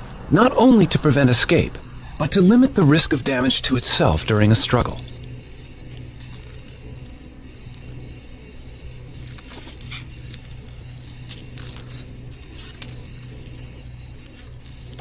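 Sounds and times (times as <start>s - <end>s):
low steady hum: 0.0s - 15.0s
dry leaves crackling and rustling: 4.0s - 15.0s.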